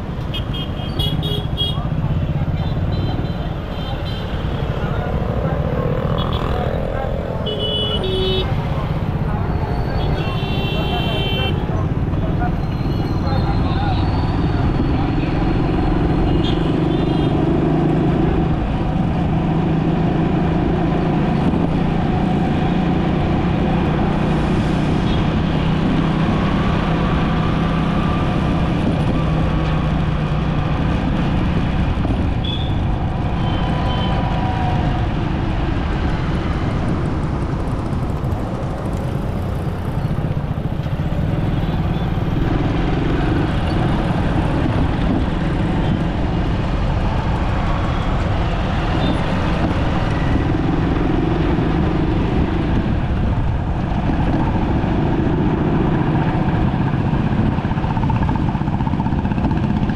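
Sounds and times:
road traffic rumble: 0:00.0 - 0:59.9.

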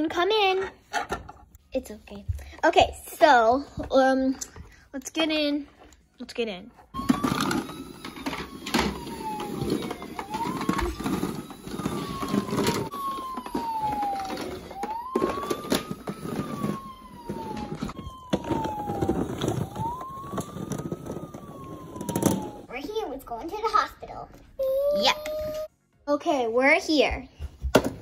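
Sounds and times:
toy siren wailing: 0:07.0 - 0:22.8, 0:24.6 - 0:25.7.

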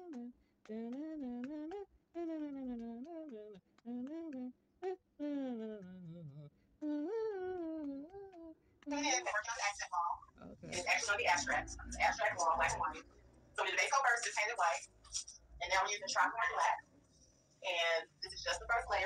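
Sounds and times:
person humming a tune: 0:00.0 - 0:08.6.

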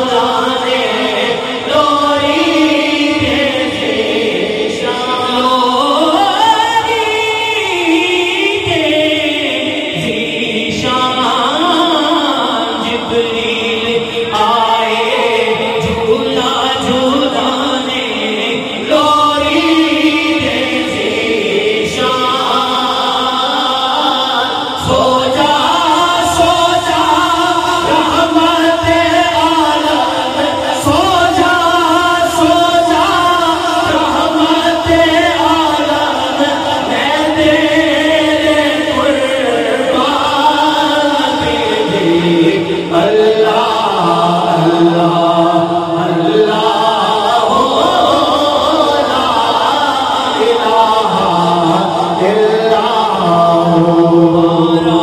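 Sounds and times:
choir singing devotional song: 0:00.0 - 0:55.0.

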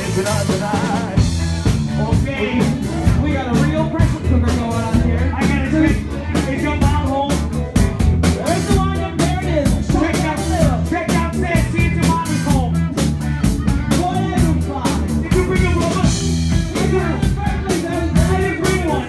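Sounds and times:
bass: 0:00.0 - 0:19.0
drum kit: 0:00.0 - 0:19.0
person singing: 0:00.0 - 0:19.0.

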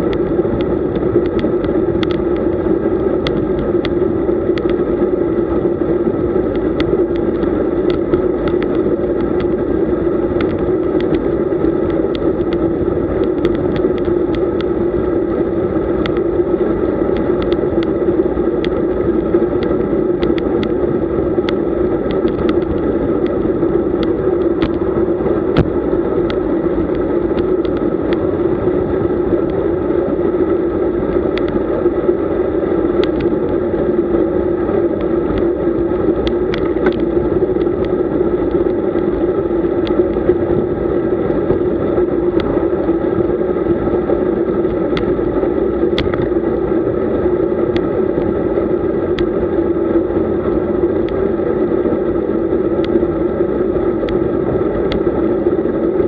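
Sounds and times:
bike rattles and clicks: 0:00.0 - 0:30.0, 0:32.8 - 0:34.0, 0:34.6 - 0:47.1
wind and road noise: 0:00.0 - 0:56.0.

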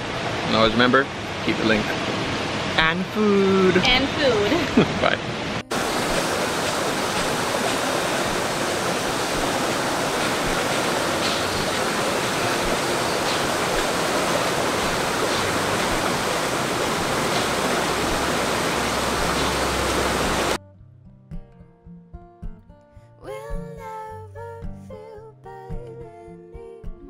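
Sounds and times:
rushing river water: 0:00.0 - 0:20.6
quiet acoustic guitar music: 0:20.6 - 0:27.0.

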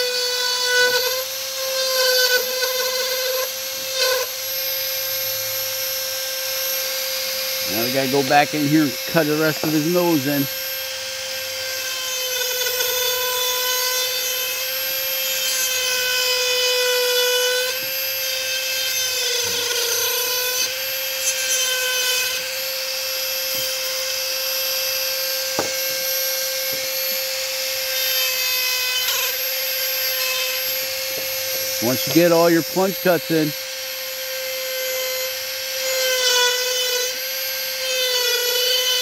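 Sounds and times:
rotary tool whining: 0:00.0 - 0:39.0
bit grinding into wood: 0:07.5 - 0:10.8, 0:15.3 - 0:39.0.

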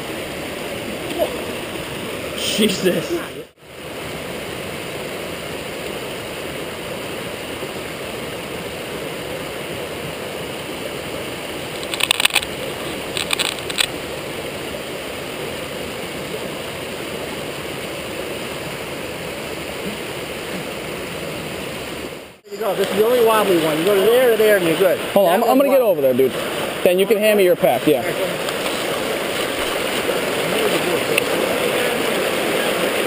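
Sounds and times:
brook pouring over rocks: 0:07.5 - 0:14.6, 0:19.6 - 0:33.0.

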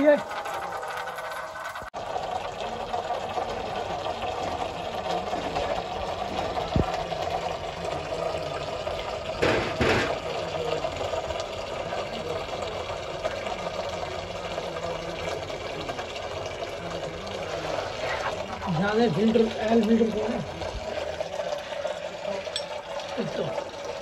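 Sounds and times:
oil splattering into metal pan: 0:09.3 - 0:10.6.

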